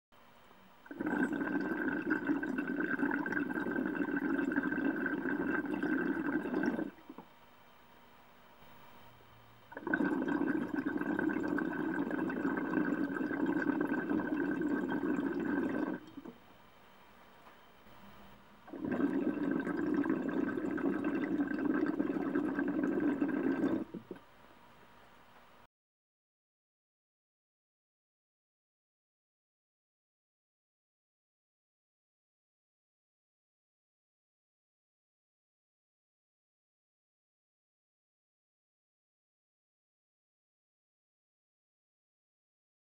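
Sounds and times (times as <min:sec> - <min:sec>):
water bubbling in a bong: 0:00.9 - 0:07.2, 0:09.7 - 0:16.4, 0:18.7 - 0:24.2.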